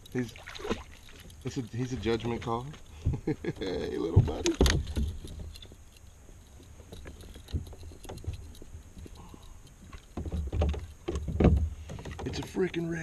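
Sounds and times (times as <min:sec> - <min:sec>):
fishing rod and reel clicks: 0:04.3 - 0:10.2
dull thump: 0:10.1 - 0:12.5.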